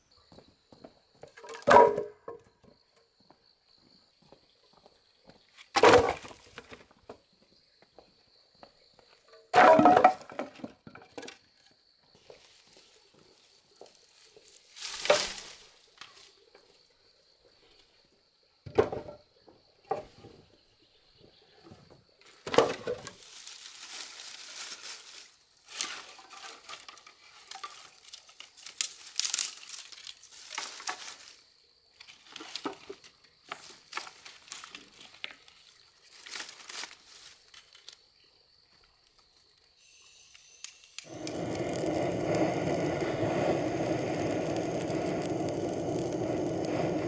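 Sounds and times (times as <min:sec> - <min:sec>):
crinkling and rustling: 0:22.6 - 0:31.4, 0:32.0 - 0:38.0
faint steady high tone: 0:39.8 - 0:41.6.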